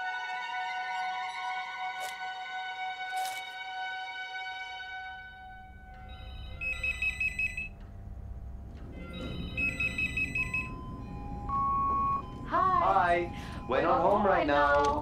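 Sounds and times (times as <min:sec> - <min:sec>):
low steady rumble: 0:05.2 - 0:15.0
telephone ringing: 0:06.0 - 0:07.8, 0:09.0 - 0:15.0.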